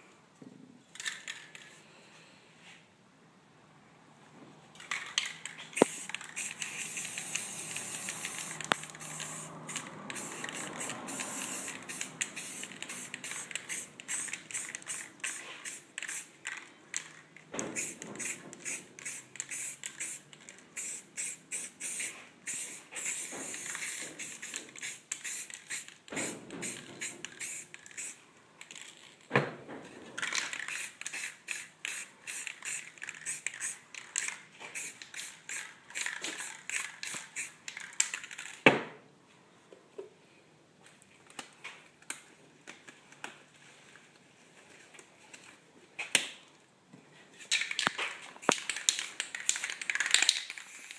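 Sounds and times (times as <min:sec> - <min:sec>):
spray paint can hissing: 0:05.8 - 0:16.4, 0:17.8 - 0:28.2, 0:30.6 - 0:37.6, 0:48.4 - 0:50.9.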